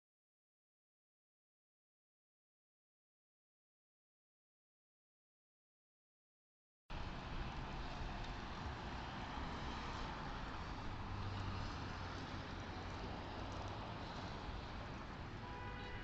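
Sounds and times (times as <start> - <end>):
road and engine noise: 6.9 - 16.0.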